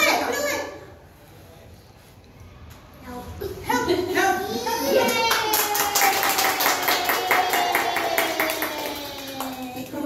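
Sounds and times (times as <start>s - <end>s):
person cheering: 4.9s - 9.8s
group clapping in rhythm: 5.1s - 10.0s.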